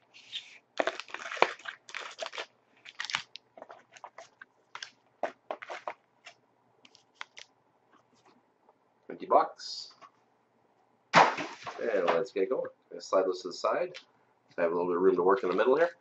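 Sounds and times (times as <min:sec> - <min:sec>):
foil packs crinkling: 0:00.1 - 0:06.0.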